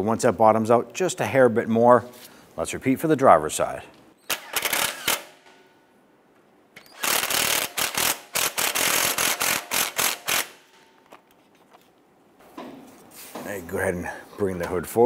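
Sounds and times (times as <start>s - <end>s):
impact wrench hammering a bolt: 4.2s - 5.6s, 6.8s - 11.2s.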